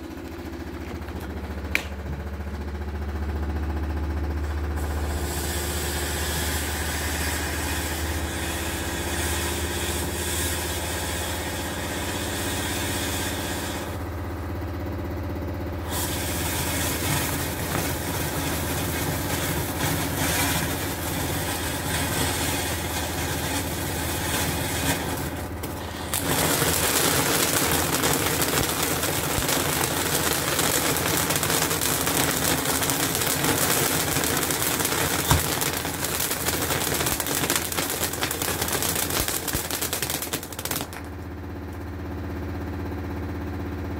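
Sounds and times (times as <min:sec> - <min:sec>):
washing machine droning: 0:00.0 - 0:43.9
firework fountain hissing and crackling: 0:15.8 - 0:41.1.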